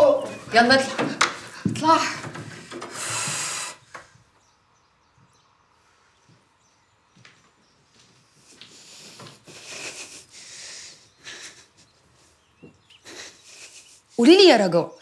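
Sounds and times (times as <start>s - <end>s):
soft rustles and shuffles: 5.9s - 10.2s.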